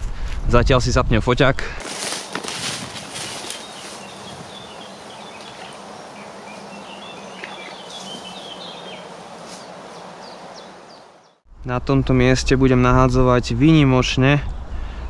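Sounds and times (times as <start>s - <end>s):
small birds chirping: 2.0s - 11.5s.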